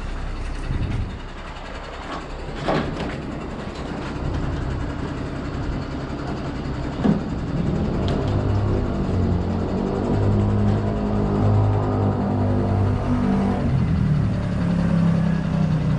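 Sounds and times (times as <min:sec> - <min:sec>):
tow truck engine running: 0:00.0 - 0:15.9
hanging machine knocking: 0:00.2 - 0:12.2.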